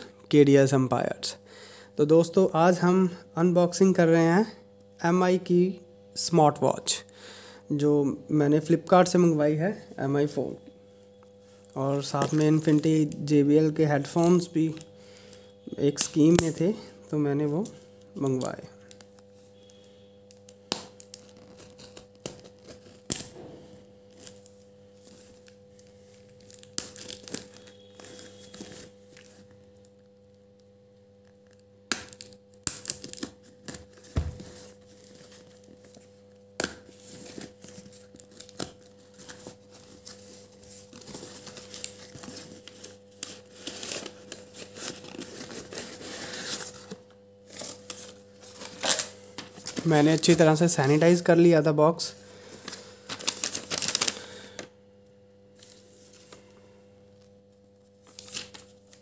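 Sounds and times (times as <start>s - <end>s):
packing tape tearing: 18.9s - 23.3s, 25.3s - 29.5s, 31.4s - 36.0s, 36.6s - 51.0s, 52.7s - 54.3s.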